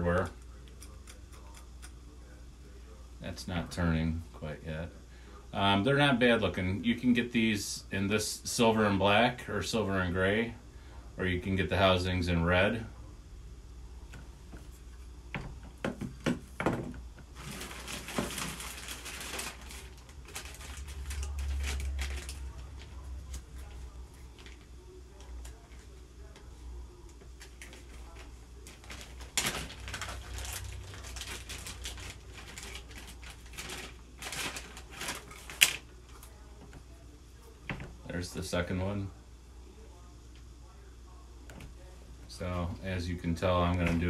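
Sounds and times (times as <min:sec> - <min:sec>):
plastic bag rustling: 0:16.8 - 0:25.6, 0:27.4 - 0:36.2.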